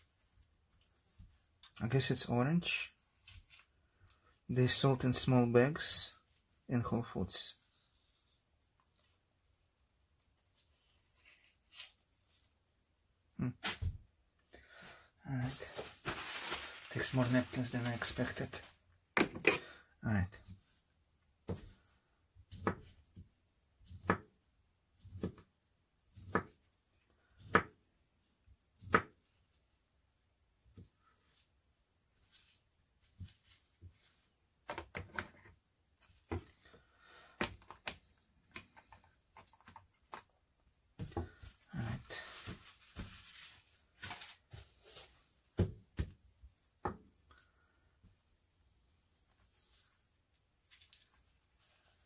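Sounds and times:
paper napkin rustling: 41.6s - 45.4s.

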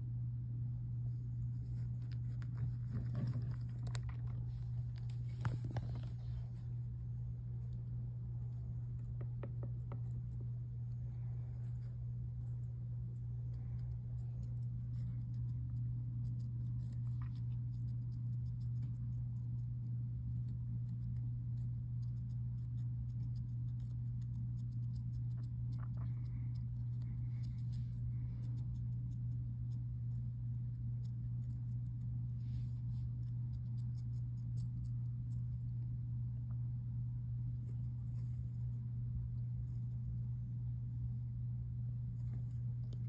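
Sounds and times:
steady low hum: 0.0s - 43.0s
hamster nibbling: 0.1s - 43.0s.

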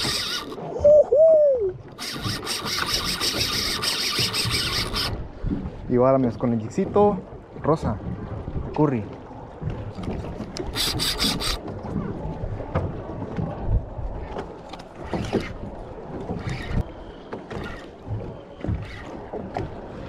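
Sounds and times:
rapid high-pitched clicking: 0.0s - 0.6s, 2.0s - 5.2s, 10.8s - 11.6s
gear knocking against boat: 2.0s - 5.2s.

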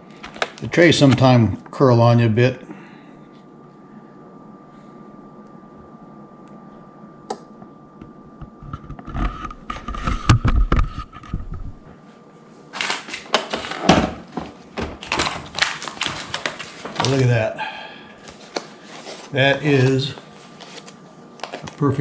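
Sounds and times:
plastic bag crinkling and rustling: 15.0s - 17.4s, 18.2s - 22.0s.

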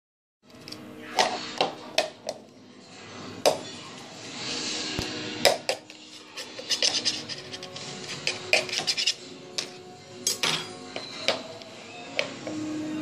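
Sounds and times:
dishes and cutlery clinking: 5.5s - 11.5s.

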